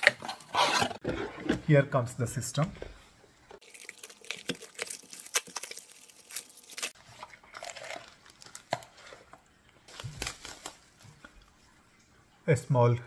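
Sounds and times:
plastic packaging crinkling: 3.6s - 9.3s, 9.9s - 11.3s.

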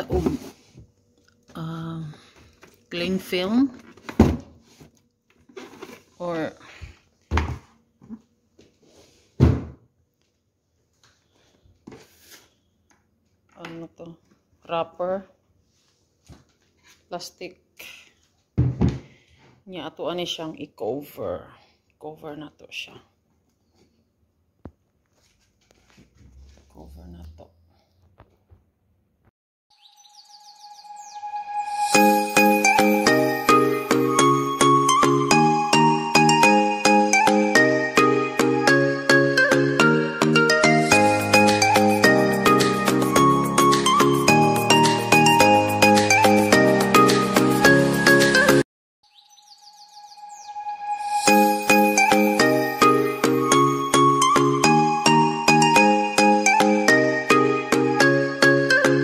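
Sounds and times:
box set down on table: 3.9s - 4.9s
ringing pitched melody notes: 30.0s - 46.8s, 49.1s - 59.0s.

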